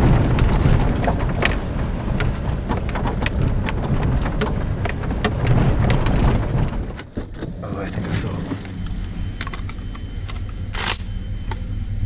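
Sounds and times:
stones ticking against truck body: 0.0 - 7.4
tyres rumbling on gravel: 0.0 - 8.8.

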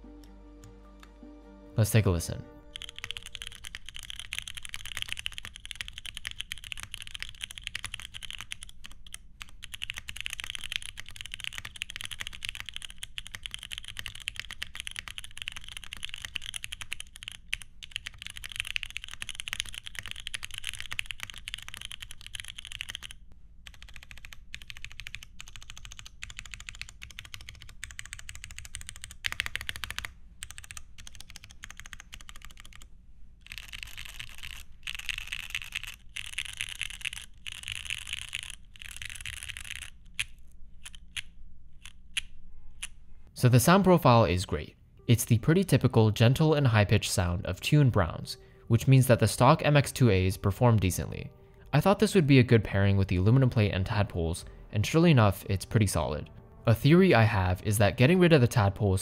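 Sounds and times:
mechanical keyboard typing: 2.6 - 42.9.

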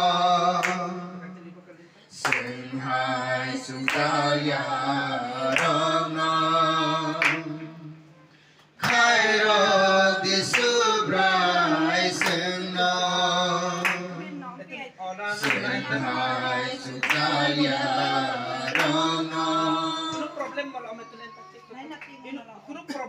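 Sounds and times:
singing in long held notes: 0.0 - 1.3, 2.1 - 8.1, 8.8 - 14.2, 15.3 - 20.4.

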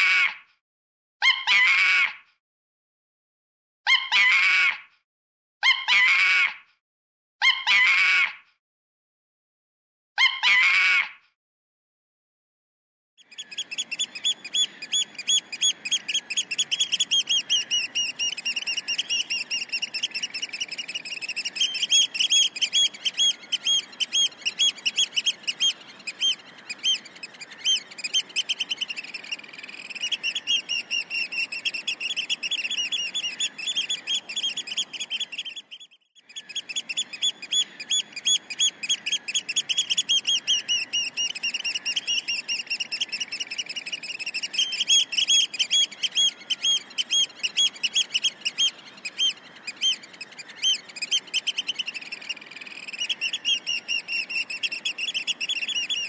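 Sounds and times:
ducks chirping: 13.3 - 56.0.

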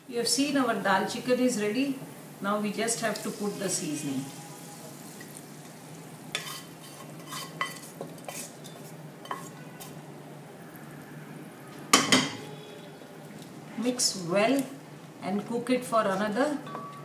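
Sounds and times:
metal spoon scraping a pan: 6.3 - 10.0.

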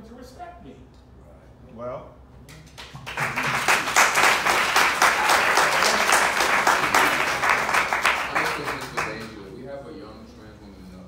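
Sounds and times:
audience applauding: 2.8 - 9.4.

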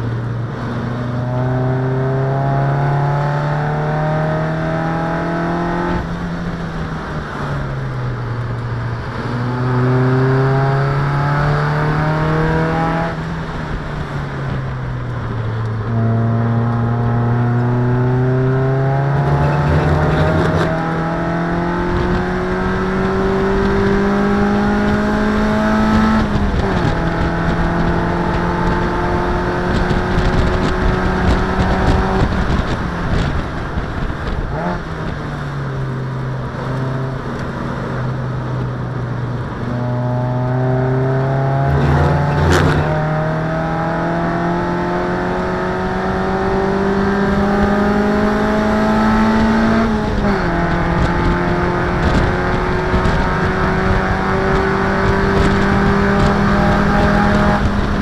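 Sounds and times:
road noise: 0.0 - 58.0
wind noise: 0.0 - 58.0
race car engine revving: 15.2 - 35.2, 36.2 - 58.0.

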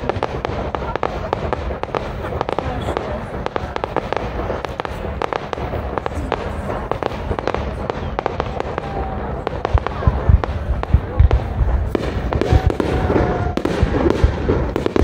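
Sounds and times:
fireworks crackling and popping: 0.0 - 15.0
loud firework bangs: 0.0 - 15.0.

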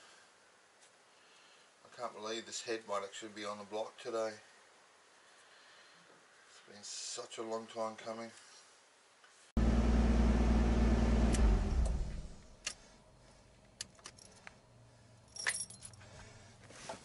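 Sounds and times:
car engine humming: 9.6 - 12.5
keys jangling in ignition: 15.3 - 16.0.

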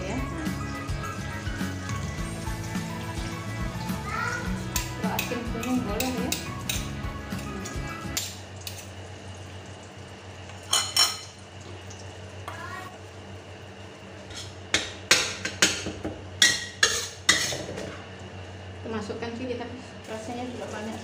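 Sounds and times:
utensils scraping a wok: 14.2 - 14.6, 16.4 - 18.0.

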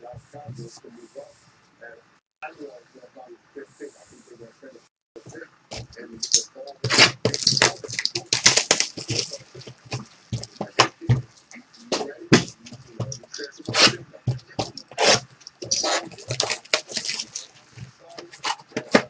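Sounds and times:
plastic wrap crinkling and tearing: 6.2 - 10.6, 14.6 - 17.7.

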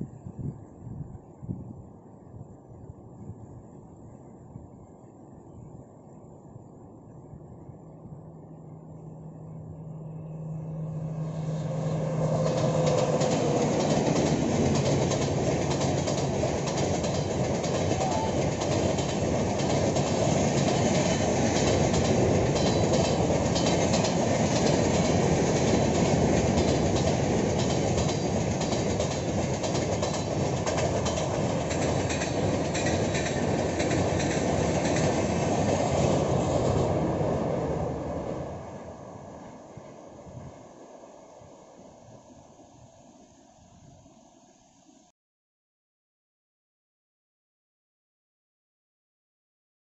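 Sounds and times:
train passing at speed: 0.0 - 45.1
wheels clacking over rail joints: 11.1 - 37.4.

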